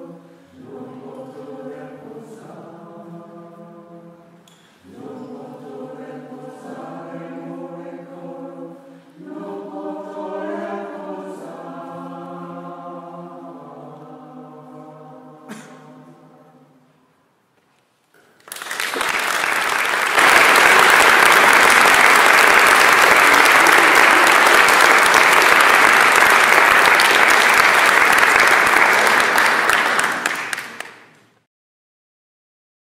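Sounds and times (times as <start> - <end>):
audience applauding: 18.4 - 31.2.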